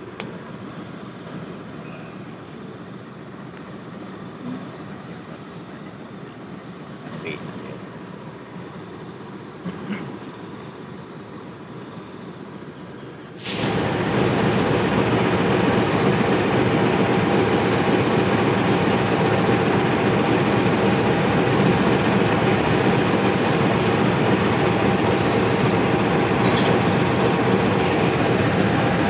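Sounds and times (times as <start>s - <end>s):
diesel locomotive engine running: 0.0s - 29.0s
high rapid pulsing: 13.6s - 29.0s.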